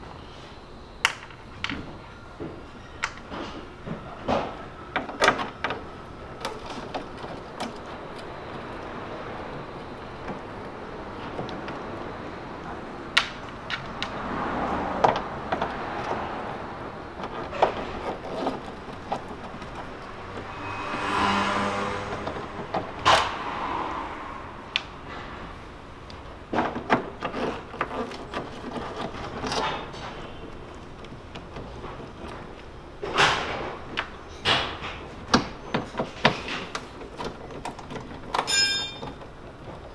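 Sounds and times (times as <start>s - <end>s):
rush of noise: 19.2s - 26.4s.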